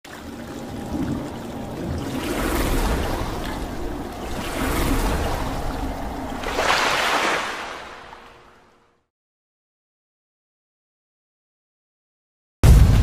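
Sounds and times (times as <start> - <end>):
water splashing and swirling: 0.0 - 8.9.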